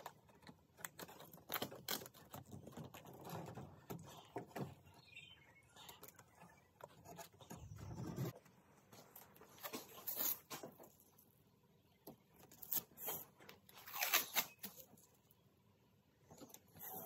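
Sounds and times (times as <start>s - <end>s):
masking tape tearing off roll: 12.5s - 14.9s.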